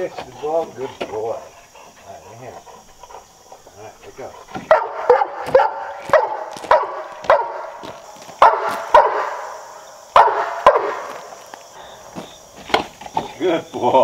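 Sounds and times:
dog barking: 4.5s - 7.8s, 8.4s - 11.2s.

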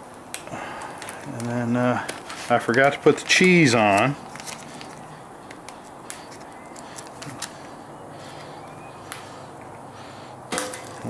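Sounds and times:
steady background hiss: 0.0s - 11.0s
plastic packet crinkling: 0.7s - 7.7s.

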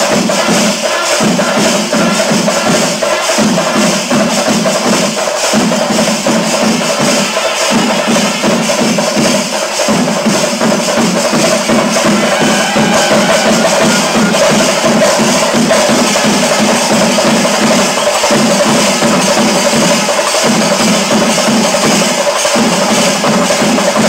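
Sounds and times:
music with fast percussion: 0.0s - 24.0s
sustained tones: 11.7s - 19.6s.

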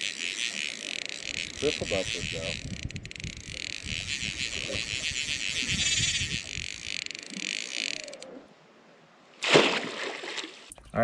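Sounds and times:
fly reel clicker ratcheting: 0.0s - 8.3s.

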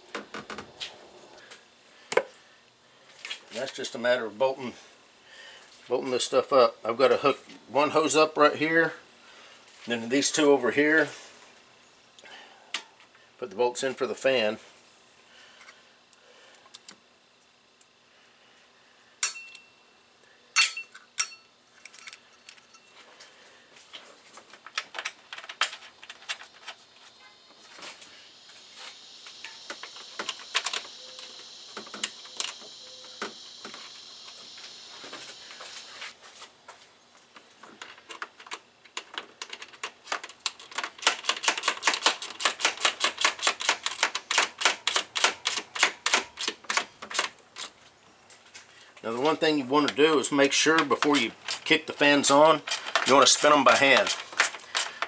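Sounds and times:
ratchet clicking: 40.2s - 47.7s, 52.3s - 55.0s
metallic clicks and clinks: 50.7s - 55.0s.

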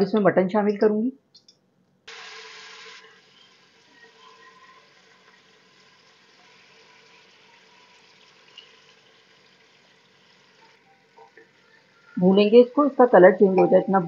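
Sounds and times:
hot oil sizzling: 2.1s - 13.0s.

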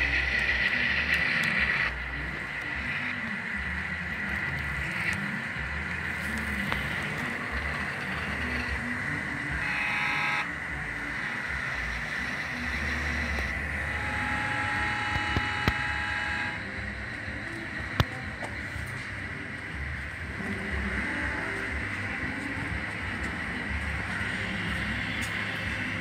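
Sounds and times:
model locomotive motor whine: 0.0s - 26.0s
train horn blasts: 9.6s - 10.5s, 13.9s - 16.6s.

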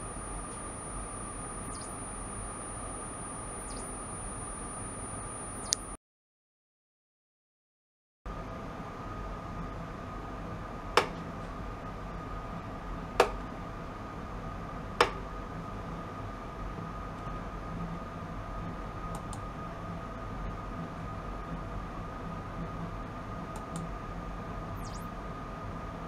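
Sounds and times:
hum with thin high tone: 0.0s - 6.0s, 15.5s - 26.0s
sharp clicks: 0.2s - 4.4s, 5.5s - 6.0s.

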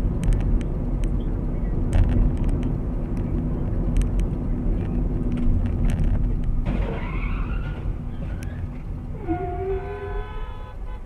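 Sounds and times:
engine and road noise: 0.0s - 11.0s
tyres squealing: 6.8s - 10.4s
car horn sounding: 9.2s - 11.0s.

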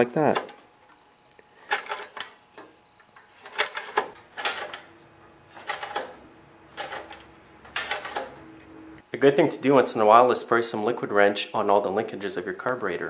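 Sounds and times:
metal linkage clicking and rattling: 5.6s - 6.1s, 6.8s - 8.3s.

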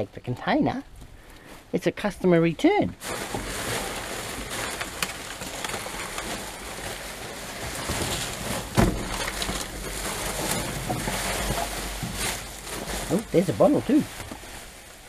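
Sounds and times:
plastic bag rustling and crinkling: 3.0s - 15.0s.

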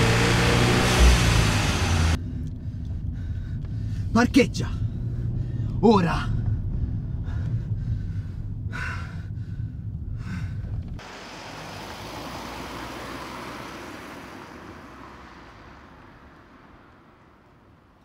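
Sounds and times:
car driving past on street: 0.0s - 2.2s, 11.0s - 18.0s
engine rumble inside car cabin: 0.0s - 11.7s.

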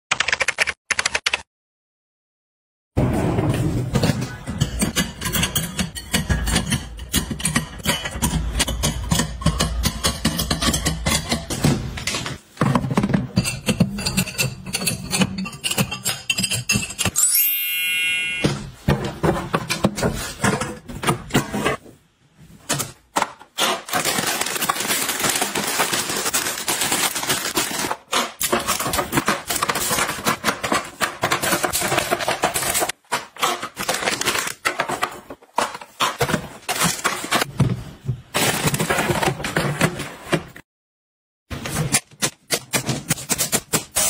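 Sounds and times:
plastic containers clattering: 18.8s - 21.8s, 22.6s - 40.6s.

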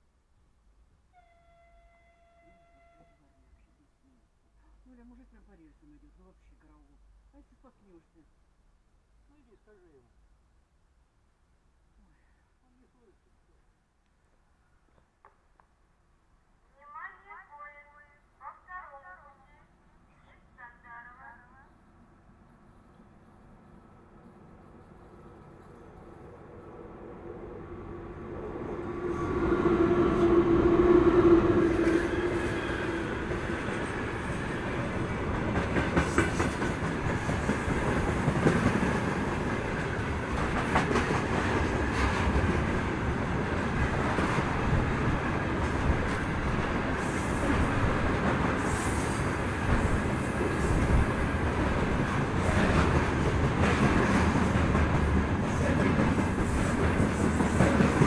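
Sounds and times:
electric locomotive tone: 23.3s - 35.3s
train wheels rumbling on rails: 28.2s - 58.0s.

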